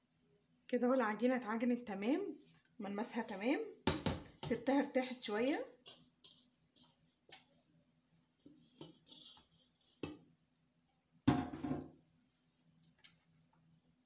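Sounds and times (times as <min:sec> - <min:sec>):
dough scraping in metal bowl: 0:03.0 - 0:10.2
dough thump on counter: 0:03.8 - 0:04.5.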